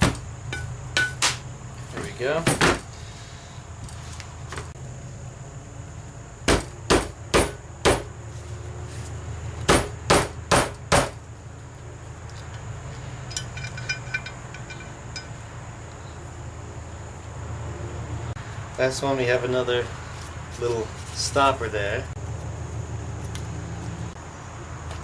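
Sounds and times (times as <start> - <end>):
small metal parts clinking: 12.3 - 15.4.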